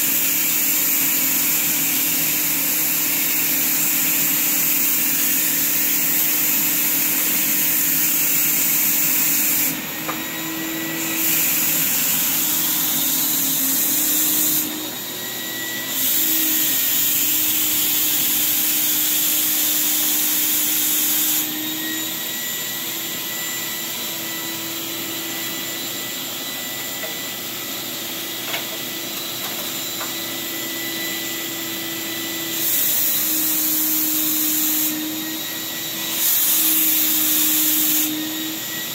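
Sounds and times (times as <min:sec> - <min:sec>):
paint sprayer motor drone: 0:00.0 - 0:38.9
spray gun hissing: 0:03.2 - 0:14.8, 0:15.8 - 0:21.6, 0:36.1 - 0:38.2.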